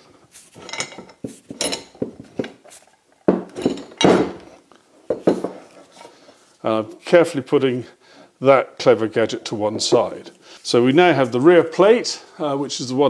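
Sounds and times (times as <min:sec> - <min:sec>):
metal vice parts clinking: 0:00.6 - 0:02.6, 0:03.5 - 0:04.5.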